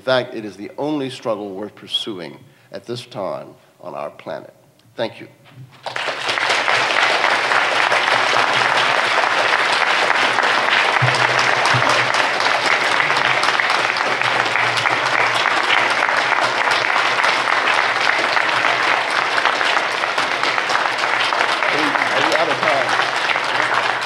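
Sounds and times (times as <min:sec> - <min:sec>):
audience clapping: 0:05.7 - 0:24.0.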